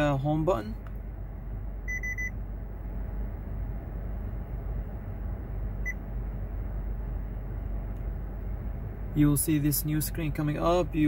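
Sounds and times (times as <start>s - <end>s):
short electronic beep: 1.9s - 2.4s.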